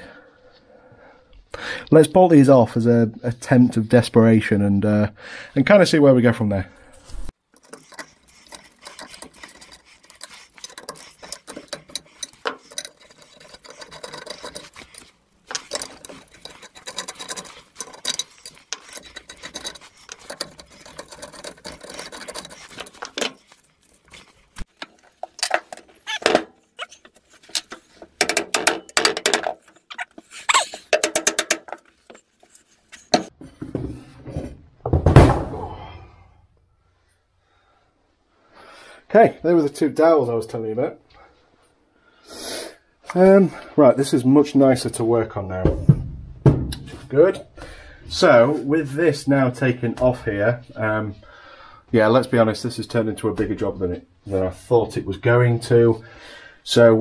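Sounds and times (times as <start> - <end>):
metal clicks scrapes and rattles: 7.5 - 33.3.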